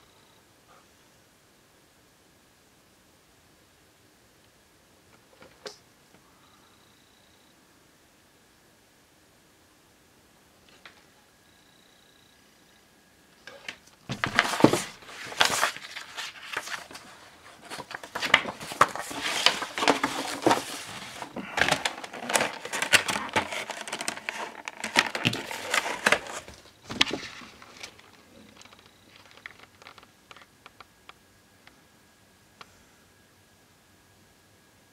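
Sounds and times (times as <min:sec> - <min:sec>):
plastic packaging crinkling: 0:13.5 - 0:30.5.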